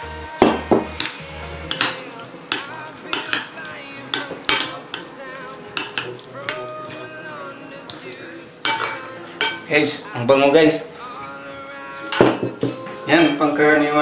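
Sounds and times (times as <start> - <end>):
fork clinking against a bowl: 1.7 - 6.7, 8.6 - 9.7, 12.1 - 13.6.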